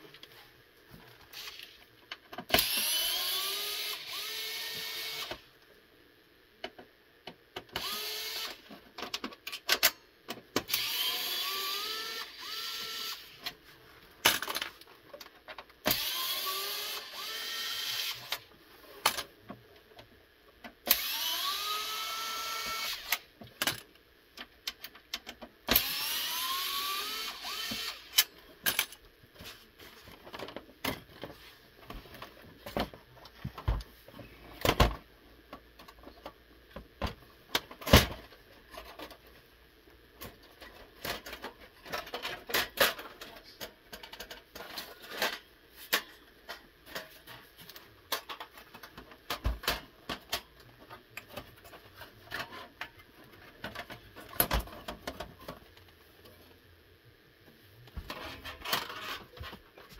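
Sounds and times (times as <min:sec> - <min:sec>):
electric screwdriver whine: 0:02.6 - 0:05.4, 0:07.8 - 0:08.6, 0:10.7 - 0:13.4, 0:15.9 - 0:18.4, 0:20.9 - 0:23.2, 0:25.7 - 0:28.2
clicks and clatter of parts: 0:06.6 - 0:10.9, 0:14.2 - 0:16.1, 0:19.0 - 0:21.0, 0:22.8 - 0:25.9, 0:27.5 - 0:33.9, 0:34.5 - 0:39.4, 0:40.2 - 0:56.0, 0:57.9 - 0:59.9.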